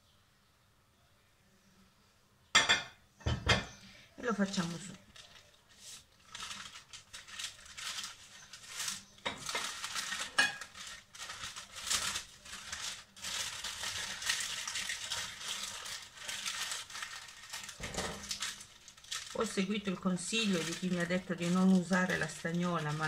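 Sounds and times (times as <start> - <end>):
baking paper crinkling: 4.2 - 23.0.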